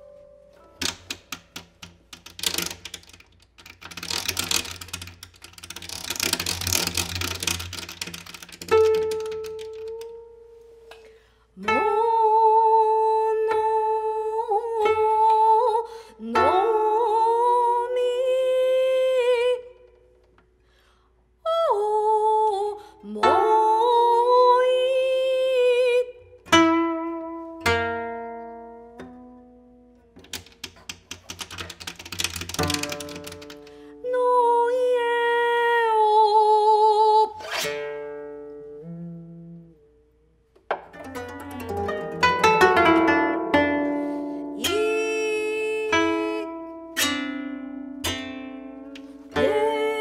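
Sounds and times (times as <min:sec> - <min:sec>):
plucked koto notes: 0:00.0 - 0:02.9, 0:05.8 - 0:19.8, 0:23.1 - 0:30.6, 0:32.5 - 0:39.9, 0:40.6 - 0:50.0
woman singing long notes: 0:11.6 - 0:19.8, 0:21.5 - 0:26.3, 0:34.0 - 0:37.5, 0:38.8 - 0:39.9, 0:44.3 - 0:46.7, 0:49.3 - 0:50.0.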